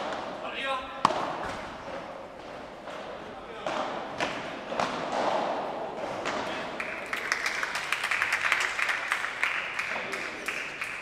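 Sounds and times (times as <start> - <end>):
spectators clapping and cheering: 6.5 - 11.0.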